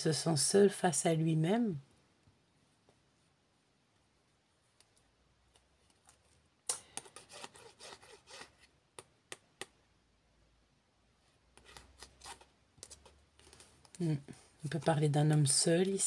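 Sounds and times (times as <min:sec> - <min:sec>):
playing cards sliding and rubbing: 0:07.0 - 0:08.7, 0:11.5 - 0:13.9.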